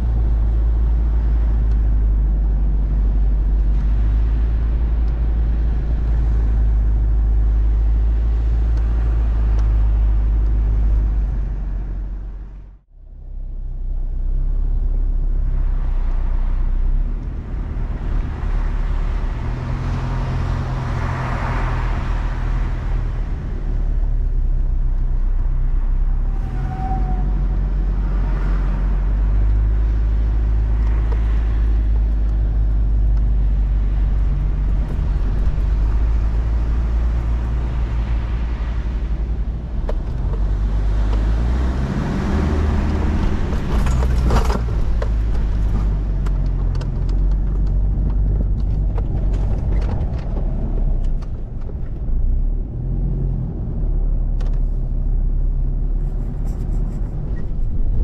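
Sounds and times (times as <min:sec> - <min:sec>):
vehicle driving on sand: 0:00.0 - 0:58.0.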